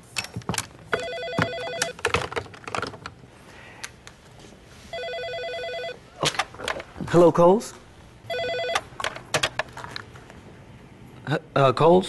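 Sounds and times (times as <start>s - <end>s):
telephone ringing electronic trill: 0.9s - 2.0s, 4.9s - 6.0s, 8.3s - 8.9s.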